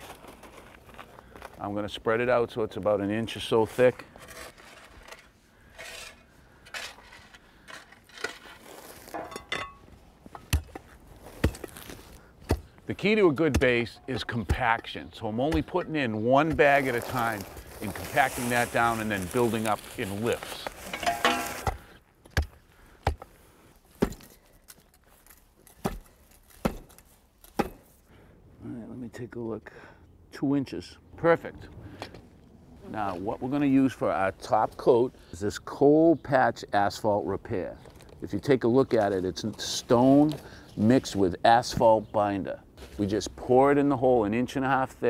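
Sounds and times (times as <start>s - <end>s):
shovel scraping crushed stone: 3.7s - 9.2s, 16.4s - 21.8s
hand tamper thudding on gravel: 20.2s - 23.3s.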